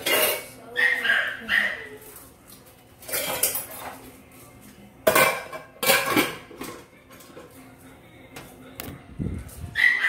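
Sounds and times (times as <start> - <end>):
dishes and cutlery clattering: 0.0 - 1.6, 2.5 - 7.6.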